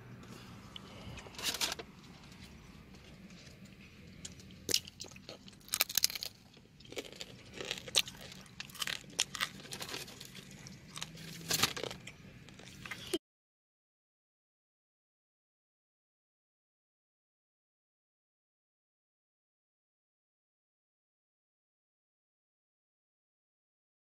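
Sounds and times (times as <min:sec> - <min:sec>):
faint low hum: 0:00.0 - 0:13.2
plastic packaging crinkling: 0:05.4 - 0:13.2.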